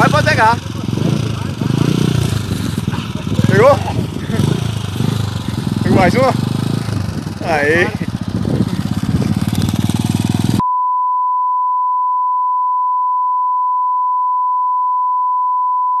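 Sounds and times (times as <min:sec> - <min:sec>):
motorcycle engine running: 0:00.0 - 0:10.6.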